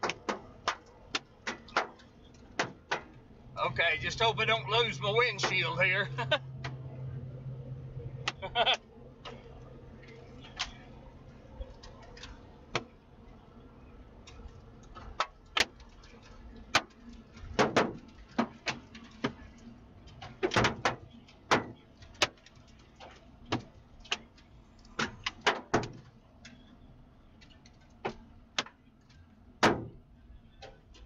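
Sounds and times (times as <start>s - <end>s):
hailstones striking a vehicle: 0.0s - 3.2s, 14.2s - 26.6s.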